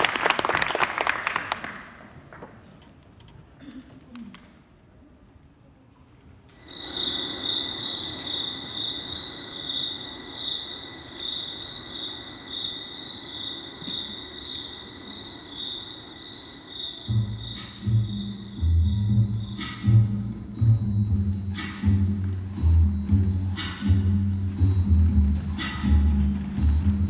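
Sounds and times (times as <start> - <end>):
pulsing cricket-like chirr: 6.6 - 21.6.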